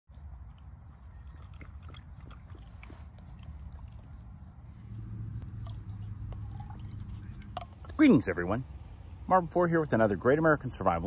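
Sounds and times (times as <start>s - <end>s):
low rumble: 1.2s - 9.3s
high-pitched hum: 3.5s - 9.3s.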